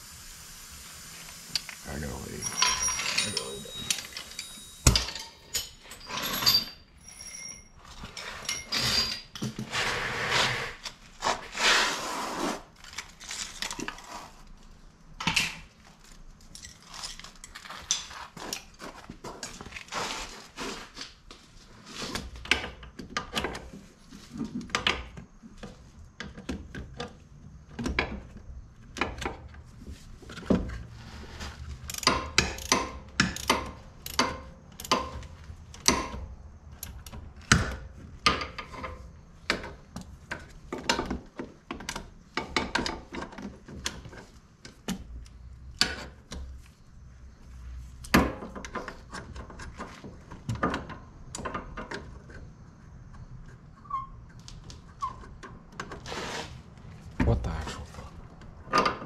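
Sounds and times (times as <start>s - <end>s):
hand tools clinking on metal: 2.2s - 9.3s.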